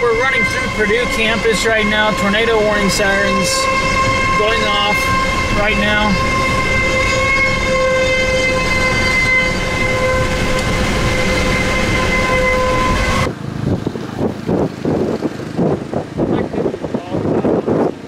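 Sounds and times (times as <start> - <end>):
warning siren steady tone: 0.0 - 13.5
road noise: 0.0 - 18.0
wind on microphone: 0.0 - 18.0.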